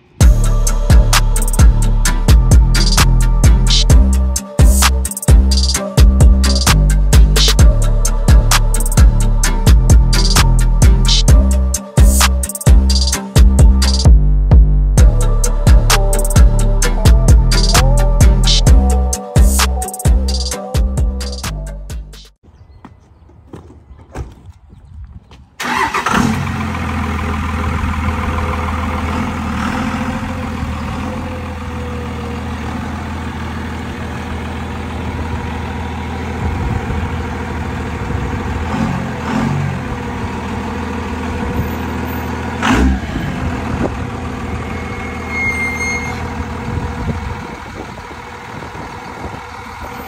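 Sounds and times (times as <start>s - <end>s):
pickup truck engine idling: 25.6s - 39.2s, 39.8s - 50.0s.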